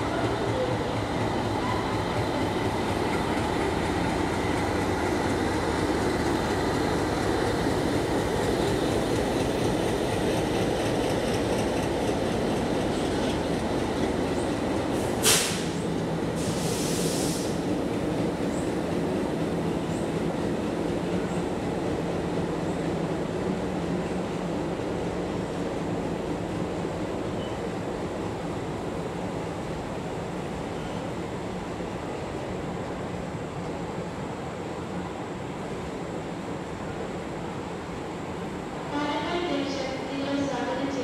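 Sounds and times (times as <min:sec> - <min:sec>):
train wheels rumbling on rail: 0:00.0 - 0:41.0
short hiss: 0:15.0 - 0:15.8, 0:16.4 - 0:17.6.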